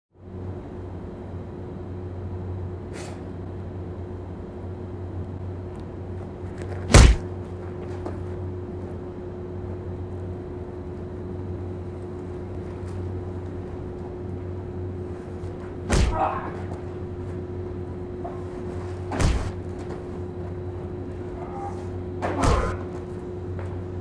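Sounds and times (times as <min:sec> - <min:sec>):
low hum: 0:00.2 - 0:24.0
loud sharp impact: 0:06.9 - 0:07.3, 0:15.9 - 0:16.6, 0:19.1 - 0:19.6.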